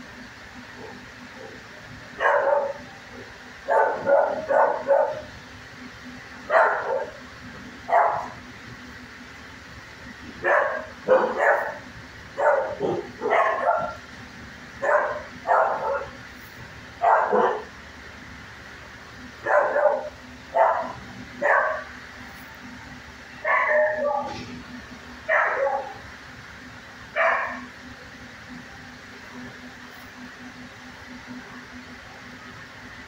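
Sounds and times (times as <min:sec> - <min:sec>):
dog barking: 0:02.2 - 0:02.9, 0:03.7 - 0:05.3, 0:06.5 - 0:07.2, 0:07.9 - 0:08.4, 0:10.4 - 0:14.0, 0:14.8 - 0:16.2, 0:17.0 - 0:17.7, 0:19.4 - 0:21.9, 0:23.4 - 0:24.4, 0:25.3 - 0:26.0, 0:27.2 - 0:27.7.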